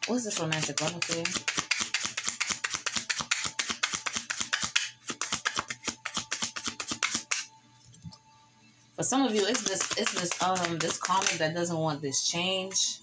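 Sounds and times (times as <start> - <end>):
cards being shuffled: 0.0 - 7.5, 9.3 - 11.4.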